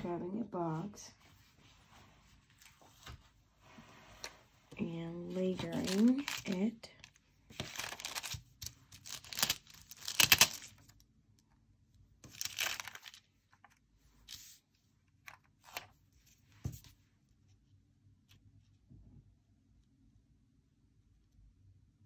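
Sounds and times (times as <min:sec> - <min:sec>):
sticker sheet crinkling: 0:05.2 - 0:11.0, 0:12.2 - 0:13.6
stickers being peeled: 0:07.6 - 0:11.0, 0:12.2 - 0:13.2.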